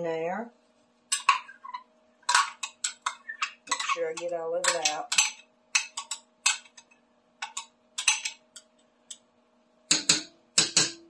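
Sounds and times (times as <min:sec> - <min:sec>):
metal spoon scraping glass cup: 0:01.2 - 0:05.4.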